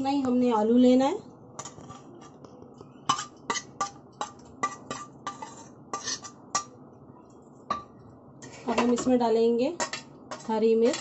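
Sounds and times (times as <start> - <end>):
metal spoon knocking steel bowls: 9.8 - 11.0.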